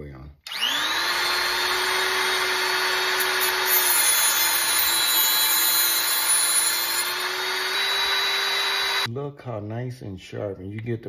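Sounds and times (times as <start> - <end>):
electric grinder whining: 0.5 - 9.1.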